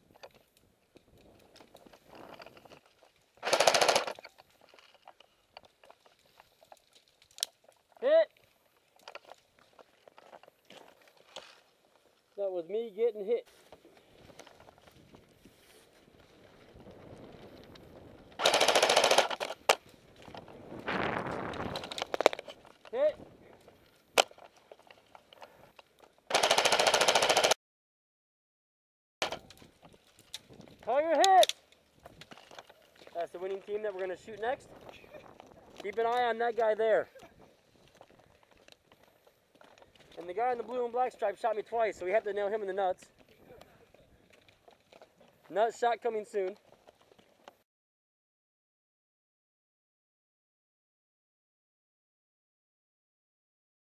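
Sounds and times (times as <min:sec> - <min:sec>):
airsoft rifle burst: 0:03.4 - 0:04.3, 0:18.4 - 0:19.8, 0:26.3 - 0:27.6.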